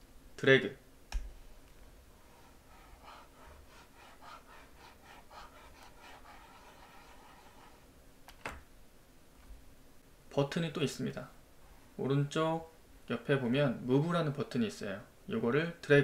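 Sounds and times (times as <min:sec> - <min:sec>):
pen scratching on tablet: 0:02.1 - 0:07.9.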